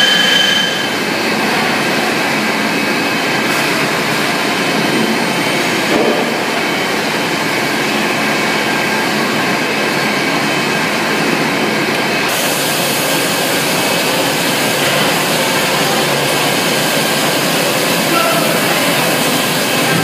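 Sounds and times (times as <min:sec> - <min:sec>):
loud machinery noise: 0:00.0 - 0:20.0
hissing machine din: 0:12.2 - 0:20.0.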